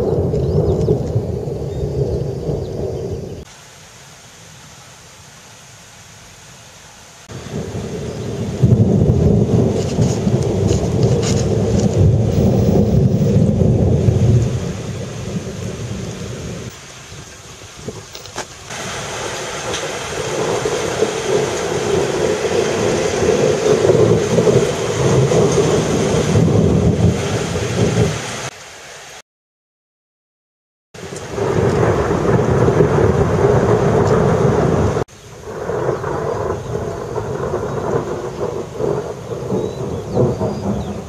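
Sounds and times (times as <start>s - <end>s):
rolls of thunder: 0.0s - 3.4s, 7.3s - 16.7s, 19.6s - 28.2s, 31.1s - 41.0s
steady rain: 0.0s - 29.2s, 31.0s - 41.0s.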